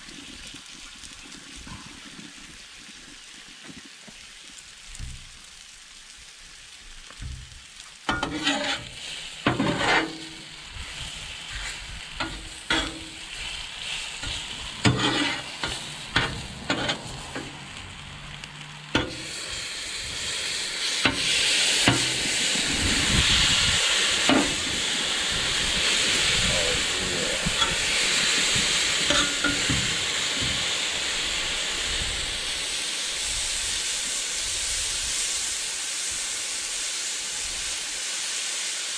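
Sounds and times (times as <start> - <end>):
meat sizzling on a griddle: 0.0 - 38.9
metal spatula scraping steel: 8.1 - 10.6, 11.5 - 13.4, 14.2 - 17.5, 29.0 - 30.5.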